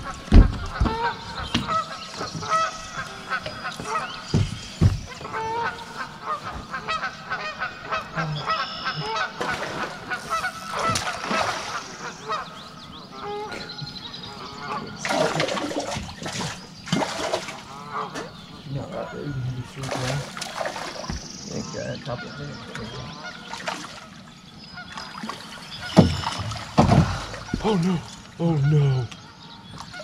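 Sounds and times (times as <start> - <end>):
geese honking: 0.0 - 30.0.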